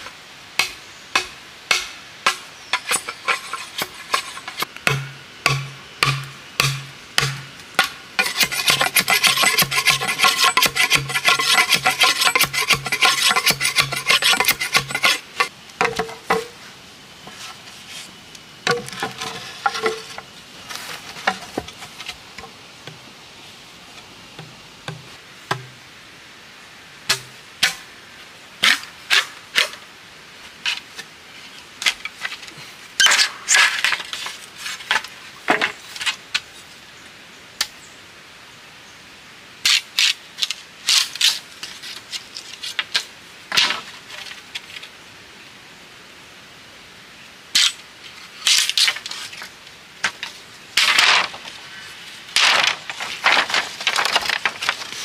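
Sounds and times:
machete scraping bamboo: 0.6 - 16.6, 31.8 - 36.2, 39.7 - 44.8, 47.6 - 47.8, 48.4 - 51.6, 52.3 - 55.0
chops on hollow bamboo: 4.9 - 16.5.

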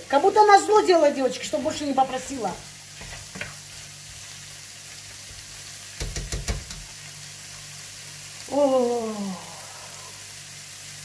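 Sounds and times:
woman exclaiming oh: 8.5 - 9.6.

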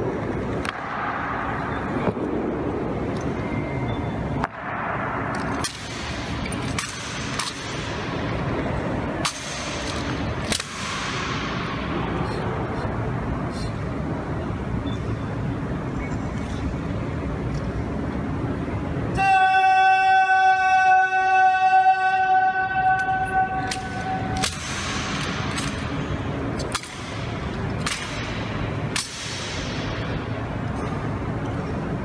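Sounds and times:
long steady horn-like tone: 19.1 - 24.4
rifle clacks and knocks echoing: 23.6 - 29.8.

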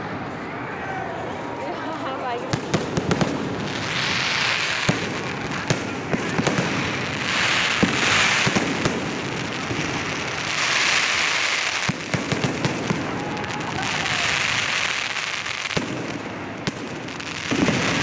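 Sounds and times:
fireworks hissing: 2.3 - 18.0
fireworks bangs and pops: 2.4 - 18.0.

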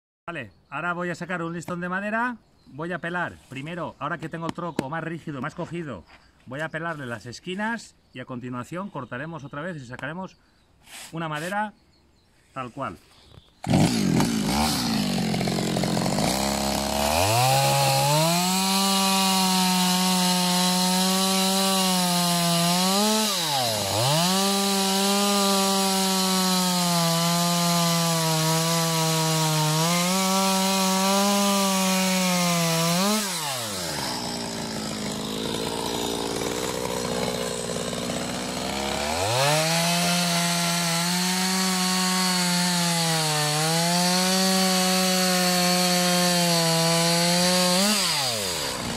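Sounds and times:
chainsaw cutting log: 13.6 - 48.9.

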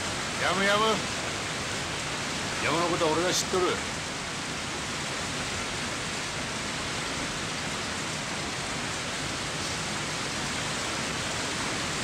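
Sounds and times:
water rushing: 0.0 - 12.0.

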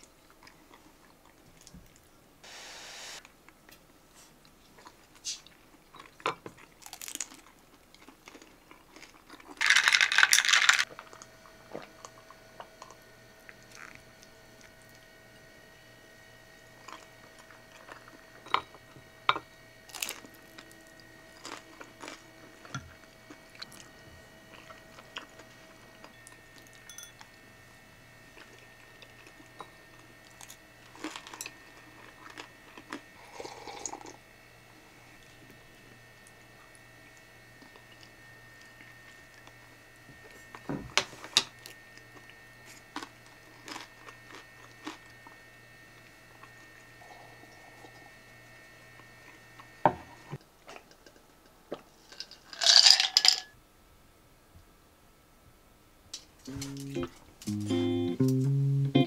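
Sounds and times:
faint steady hum: 0.0 - 50.6, 52.7 - 59.0
loud hissing or rustling: 2.4 - 3.2
person chewing and crunching food: 4.4 - 15.0, 16.8 - 19.0, 19.9 - 27.3, 28.3 - 34.2, 41.6 - 45.4.

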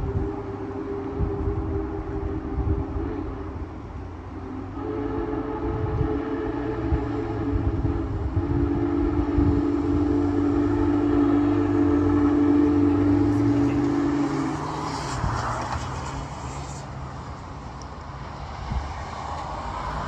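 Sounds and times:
passing train rumble: 0.0 - 20.0
steam whistle chord: 4.3 - 15.1
brief steam hiss: 14.4 - 17.1.

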